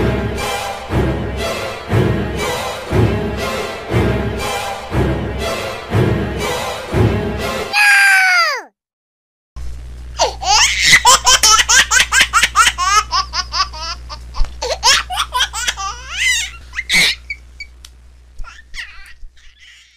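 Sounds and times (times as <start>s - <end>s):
steady low hum: 9.6s - 19.7s
rapid high-pitched laughter: 10.2s - 17.5s, 18.4s - 19.9s.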